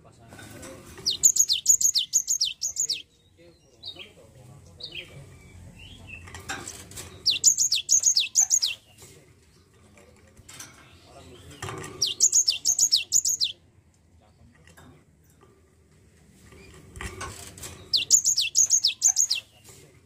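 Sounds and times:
bird calling rapid high notes: 0:01.1 - 0:03.0.

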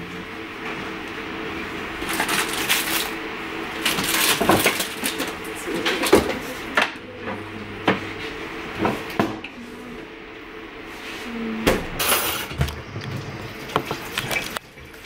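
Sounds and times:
tap water rushing: 0:12.5 - 0:15.0.

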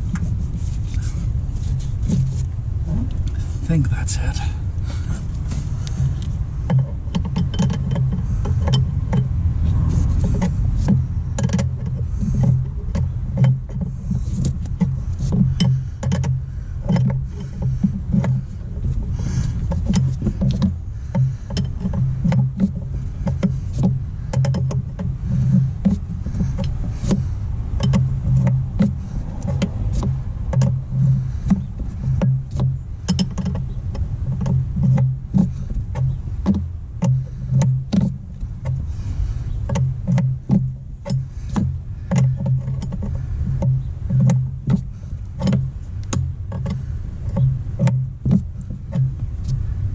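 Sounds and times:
steady low rumble: 0:00.0 - 0:49.9
wrench clicking on metal: 0:10.2 - 0:38.9.

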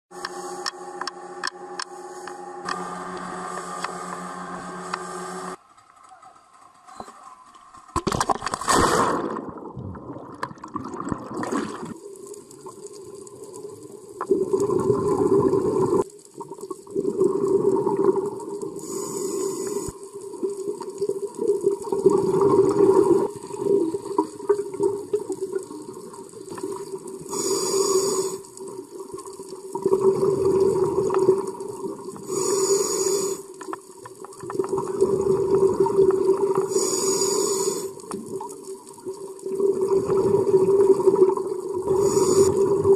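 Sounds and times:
regulator inhalation hiss: 0:01.8 - 0:05.3, 0:18.8 - 0:20.2, 0:27.2 - 0:28.6, 0:32.2 - 0:33.6, 0:36.6 - 0:38.1, 0:41.9 - 0:42.9
exhaled bubbles gurgling: 0:08.0 - 0:42.9.

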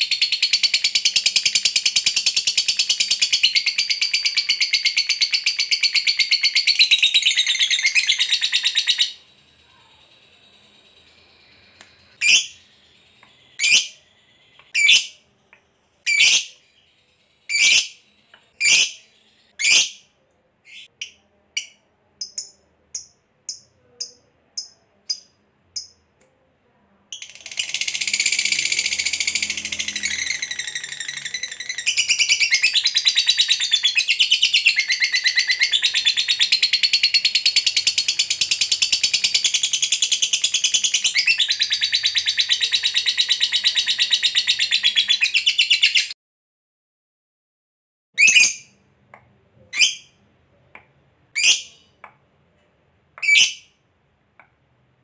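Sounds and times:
lovebird chirping: 0:00.0 - 0:46.2, 0:48.2 - 0:48.8, 0:49.6 - 0:50.2, 0:51.3 - 0:52.0, 0:53.2 - 0:53.8
lovebird chattering trill: 0:12.2 - 0:12.7.

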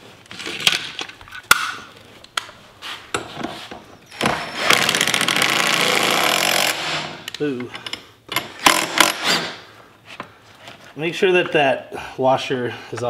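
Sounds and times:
impact driver hammering: 0:08.4 - 0:09.6.

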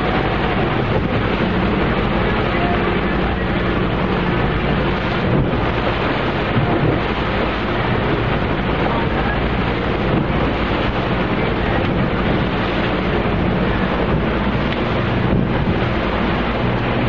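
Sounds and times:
boat engine running: 0:00.0 - 0:17.0
sea rushing: 0:00.0 - 0:17.0
wind buffeting microphone: 0:00.0 - 0:17.0.

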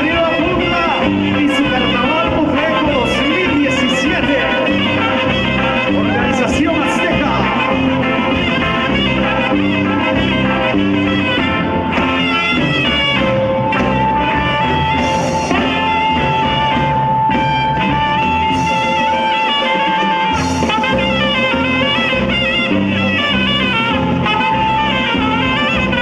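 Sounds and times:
live band playing dance tune: 0:00.0 - 0:26.0
saxophone held high note: 0:00.3 - 0:26.0.

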